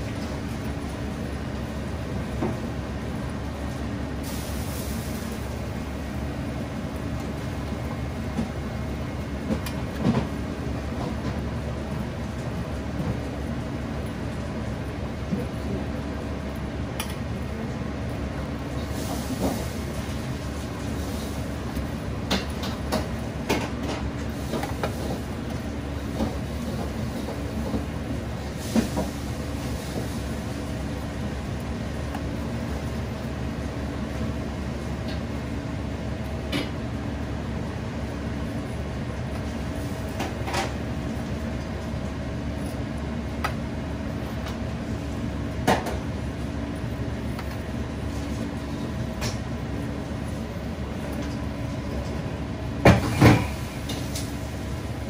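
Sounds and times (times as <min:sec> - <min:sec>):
kitchen machinery humming: 0:00.0 - 0:55.0.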